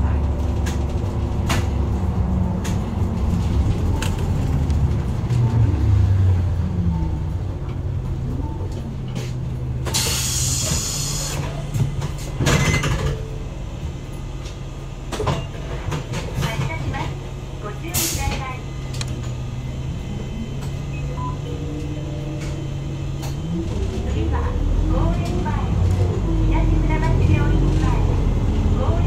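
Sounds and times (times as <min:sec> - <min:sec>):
bus diesel engine running: 0:00.0 - 0:29.0
compressed air hiss: 0:10.0 - 0:11.4.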